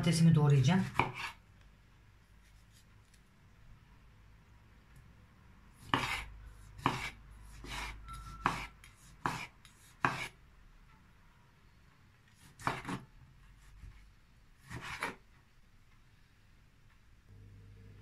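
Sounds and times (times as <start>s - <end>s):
knife cutting on wooden board: 0.9s - 1.4s, 5.8s - 10.4s, 12.3s - 13.1s, 14.6s - 15.2s.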